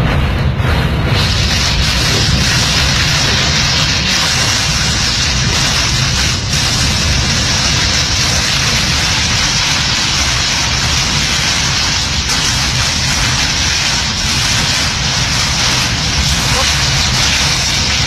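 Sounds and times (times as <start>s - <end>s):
deep low rumble: 0.0s - 18.0s
storm wind and driving rain: 0.0s - 18.0s.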